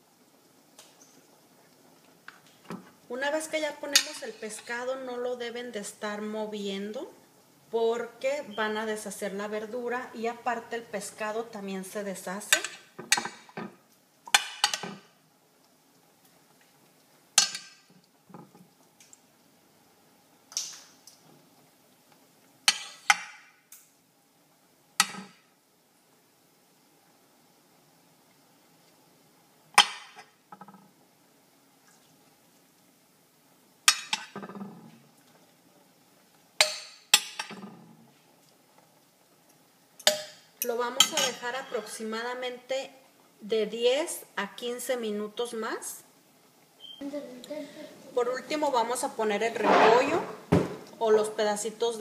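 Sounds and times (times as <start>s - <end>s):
kitchenware clattering: 3.9s - 4.7s, 12.4s - 15.1s, 17.4s - 18.6s, 22.7s - 23.4s, 33.9s - 34.8s, 36.6s - 37.9s, 40.0s - 42.1s, 49.5s - 50.9s
kitchenware clinking: 3.9s - 4.7s, 12.5s - 15.1s, 17.4s - 18.5s, 22.7s - 23.3s, 33.9s - 34.8s, 36.6s - 37.8s, 40.0s - 42.1s, 49.6s - 50.9s.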